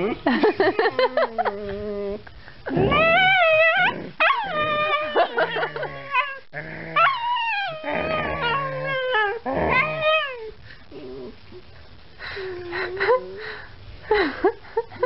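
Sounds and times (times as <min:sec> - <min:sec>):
puppy howling and whining: 0:01.2 - 0:10.6.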